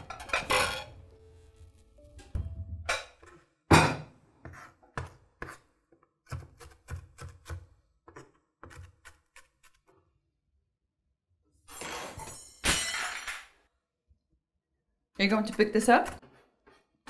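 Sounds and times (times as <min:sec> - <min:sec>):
knife chopping on a board: 0:03.7 - 0:09.8.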